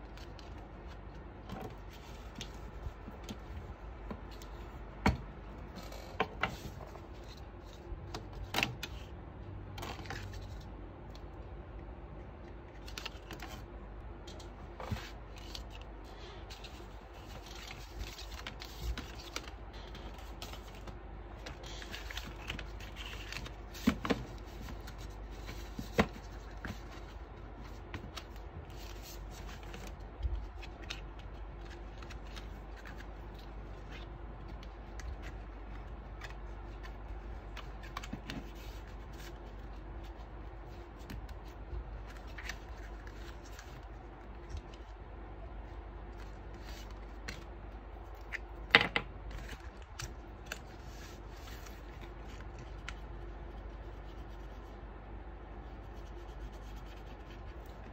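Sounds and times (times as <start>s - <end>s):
low steady hum: 0.0s - 57.9s
paper rustling and sliding: 49.3s - 54.5s.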